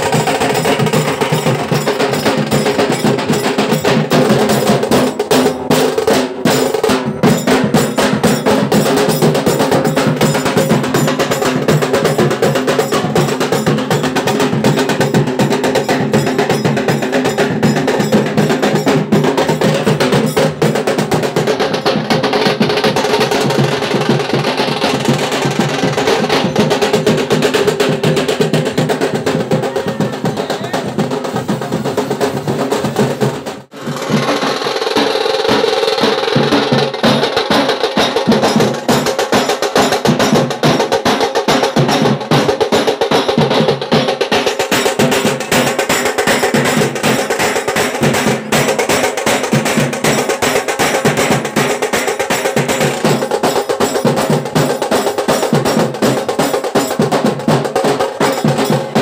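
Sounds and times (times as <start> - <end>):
drum group playing fast beat: 0.0 - 59.0.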